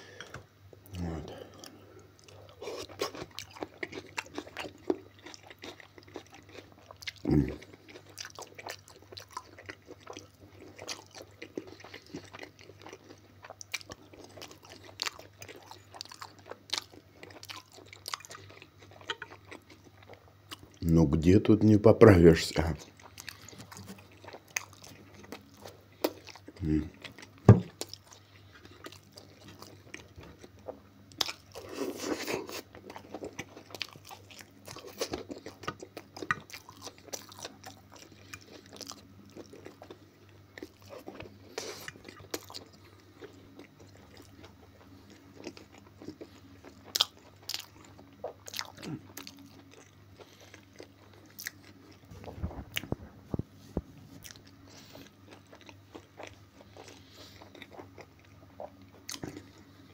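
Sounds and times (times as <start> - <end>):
man chewing food: 0.0 - 20.9, 22.5 - 59.9.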